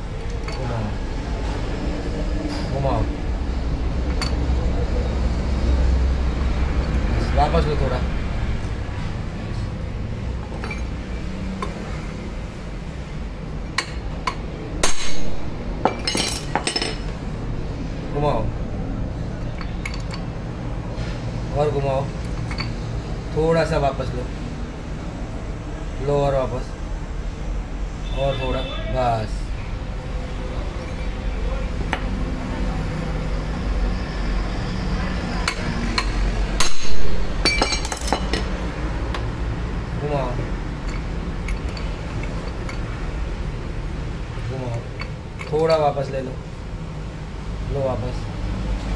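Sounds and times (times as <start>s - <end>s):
hammer clinking on metal: 13.8s - 17.1s, 35.5s - 38.5s.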